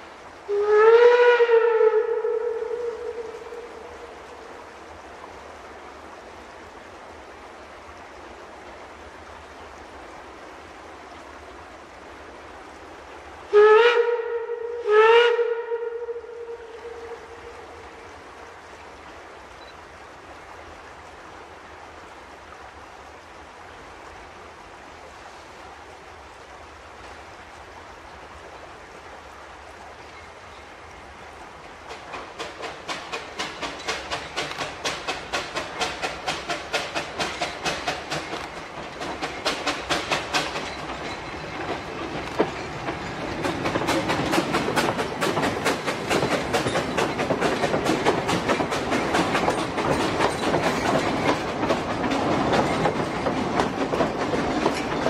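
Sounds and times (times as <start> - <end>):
steam whistle blasts: 0.5 - 4.1, 13.5 - 17.8
steam locomotive chuffing: 31.7 - 55.0.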